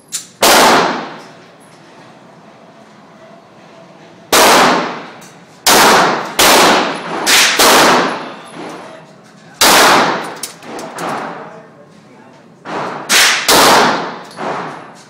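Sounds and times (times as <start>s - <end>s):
pistol shots echoing indoors: 0.1s - 1.3s, 4.3s - 8.8s, 9.6s - 11.4s, 12.6s - 15.0s.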